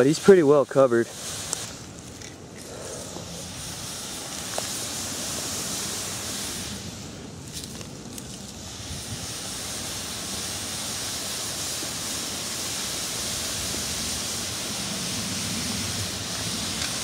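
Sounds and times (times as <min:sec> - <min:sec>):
water boiling in a pot: 0:02.4 - 0:17.0.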